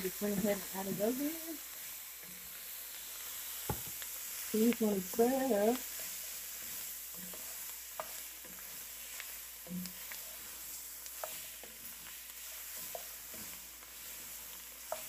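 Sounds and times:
vegetables sizzling in roux: 0:00.0 - 0:15.0
wooden spatula scraping a pot: 0:05.1 - 0:15.0.

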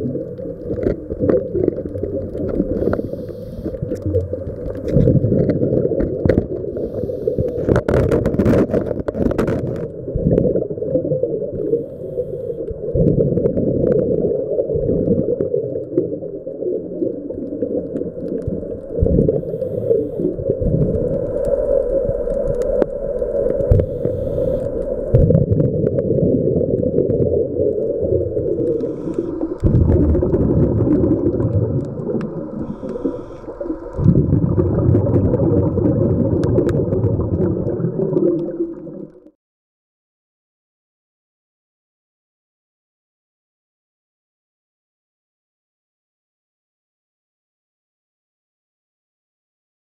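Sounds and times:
exhaled bubbles rumbling: 0:00.0 - 0:39.4
scuba diver breathing through regulator: 0:02.6 - 0:04.1, 0:06.6 - 0:07.9, 0:11.6 - 0:12.7, 0:19.2 - 0:20.6, 0:23.6 - 0:25.2, 0:28.5 - 0:34.3.

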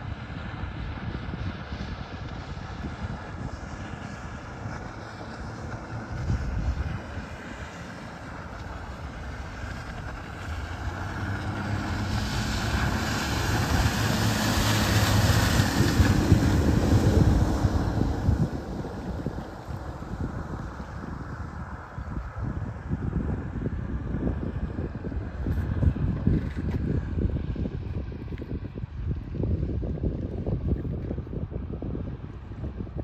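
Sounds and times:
outboard motor running: 0:00.1 - 0:22.3.

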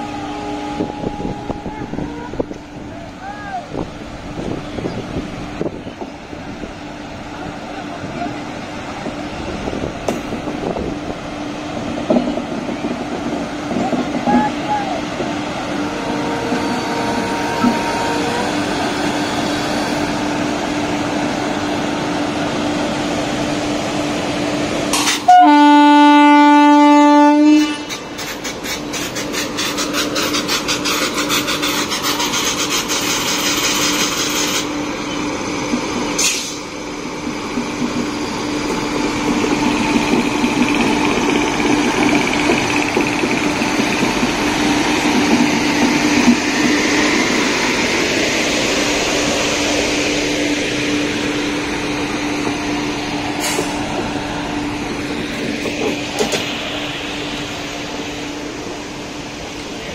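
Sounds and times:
locomotive horn blast: 0:15.8 - 0:18.8, 0:25.0 - 0:28.0
wheels clicking over rail joints: 0:37.2 - 0:46.8.

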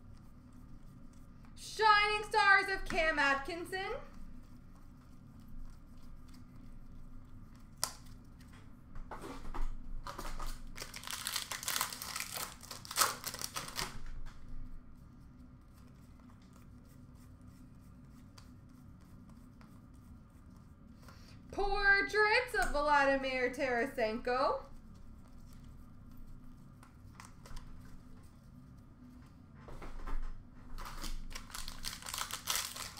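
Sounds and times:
card pack wrapper tearing: 0:10.6 - 0:14.0, 0:30.8 - 0:32.9.

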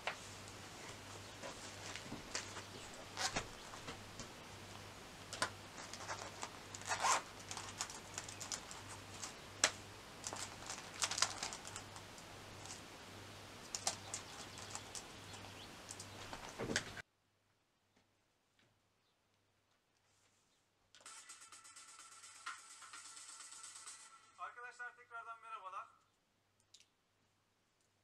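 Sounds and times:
stationery tapping and rustling: 0:00.0 - 0:12.8, 0:13.6 - 0:17.0
pencil case zip pulled: 0:05.4 - 0:09.3.

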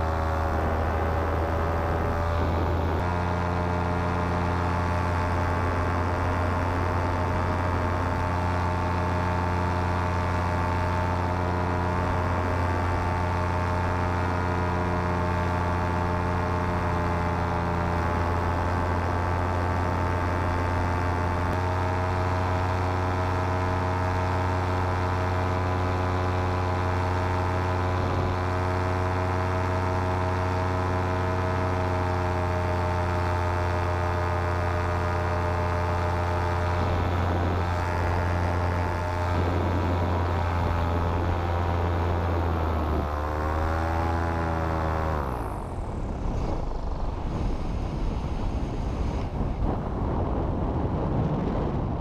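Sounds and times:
paramotor engine running: 0:00.0 - 0:52.0
wind rushing over microphone: 0:45.2 - 0:52.0.

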